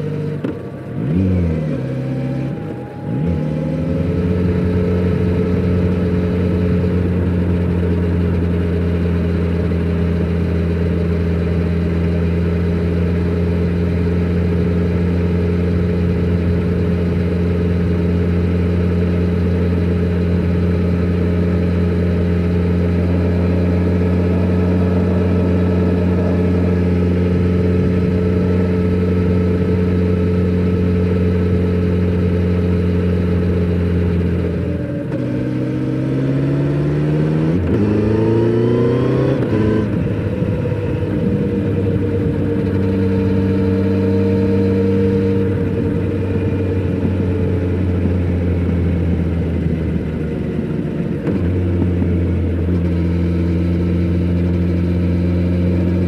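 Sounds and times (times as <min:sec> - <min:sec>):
motorcycle engine riding: 0:00.0 - 0:56.0.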